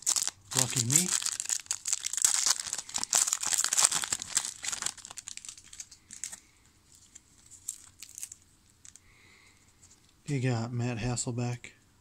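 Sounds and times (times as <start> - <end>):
wrapper crinkling and tearing: 0.0 - 9.0.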